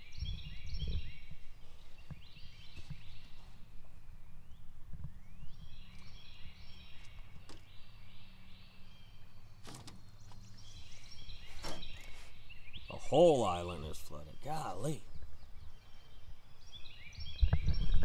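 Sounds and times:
birds singing and chirping: 0.0 - 18.0.

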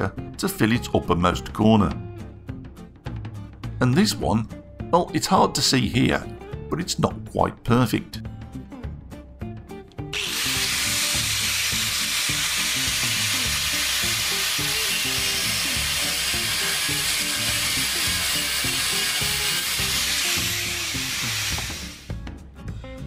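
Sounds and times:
angle grinder cutting metal: 10.1 - 22.2.

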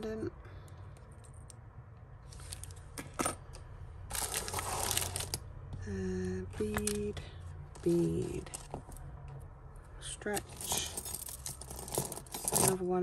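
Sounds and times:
metal jewellery clinking: 10.3 - 12.9.

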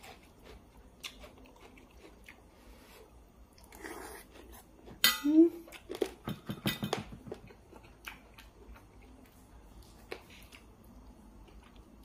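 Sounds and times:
person chewing with wet clicks: 0.0 - 2.5, 7.3 - 12.0.

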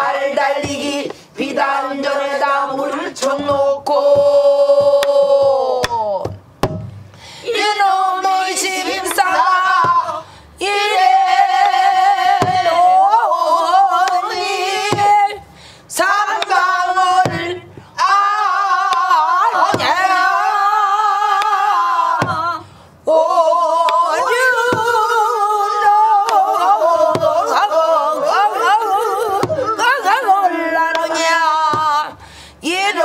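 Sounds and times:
woman singing: 0.0 - 6.4, 7.4 - 33.0
barrel drum strokes: 6.2 - 7.1, 12.4 - 12.9.

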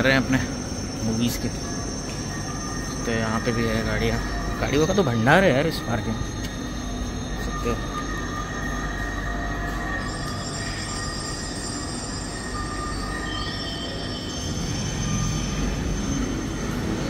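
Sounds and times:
low mechanical rumble: 0.0 - 13.5
high whining tones: 0.0 - 17.0.

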